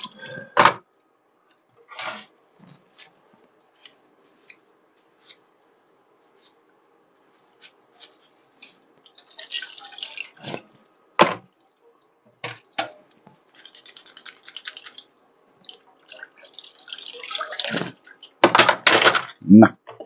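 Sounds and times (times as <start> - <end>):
water splashing in sink: 9.1 - 10.8, 12.8 - 18.5.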